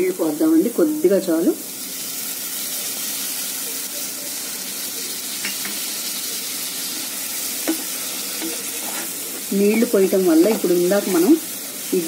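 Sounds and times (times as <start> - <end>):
masala sizzling in frying pan: 0.0 - 12.0
spatula scraping pan: 6.9 - 11.6.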